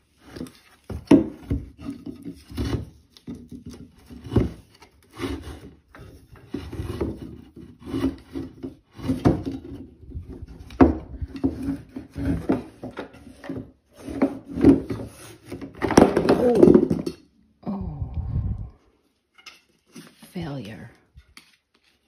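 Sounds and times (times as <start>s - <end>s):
stick scraping wood: 0.0s - 16.9s.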